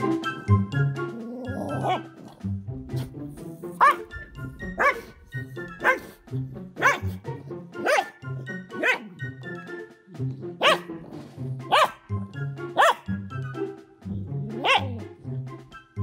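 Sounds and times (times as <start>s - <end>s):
background music with steady beat: 0.0s - 16.0s
dog barking: 1.7s - 2.4s, 3.7s - 6.2s, 6.8s - 7.2s, 7.8s - 9.2s, 10.6s - 11.1s, 11.7s - 12.1s, 12.8s - 13.1s, 14.5s - 15.1s.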